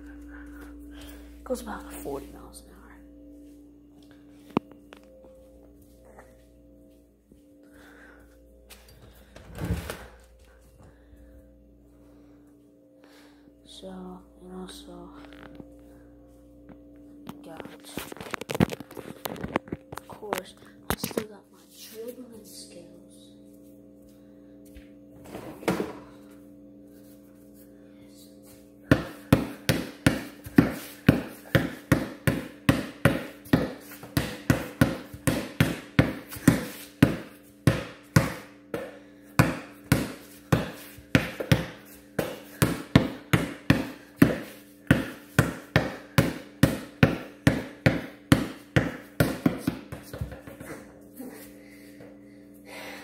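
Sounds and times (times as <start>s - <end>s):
basketball bouncing on concrete: 28.9s - 50.7s.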